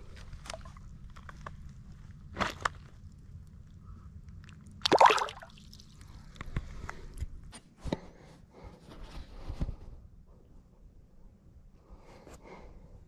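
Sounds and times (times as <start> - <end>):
water splashing: 4.8 - 5.8.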